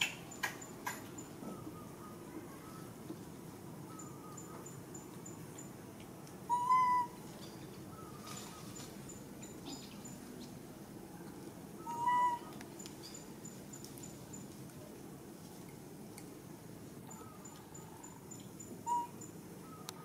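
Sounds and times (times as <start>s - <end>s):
baby monkey coo calls: 6.5s - 7.2s, 11.8s - 12.6s, 18.8s - 20.0s.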